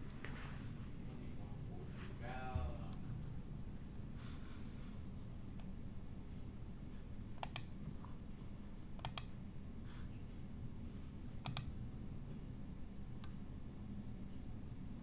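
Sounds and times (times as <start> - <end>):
low steady hum: 0.0 - 15.0
computer mouse double clicks: 7.4 - 7.7, 9.0 - 9.3, 11.4 - 11.7.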